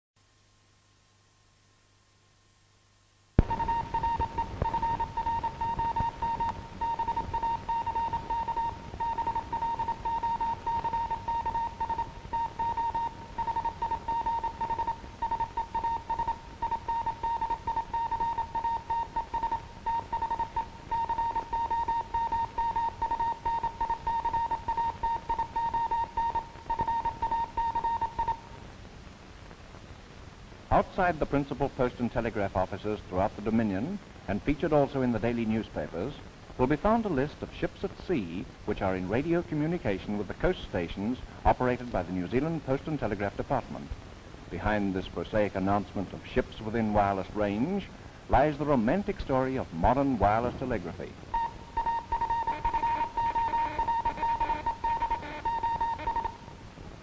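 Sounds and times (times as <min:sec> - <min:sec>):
film soundtrack hiss: 0:00.2 - 0:57.0
morse code tone: 0:03.4 - 0:28.4, 0:51.3 - 0:56.4.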